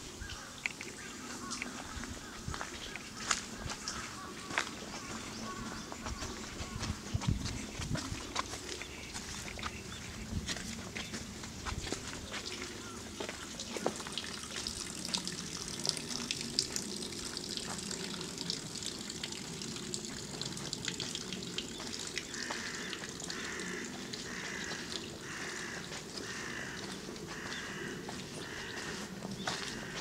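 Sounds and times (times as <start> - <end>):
running water rushing: 0.2 - 30.0
footsteps: 0.7 - 14.7, 24.0 - 30.0.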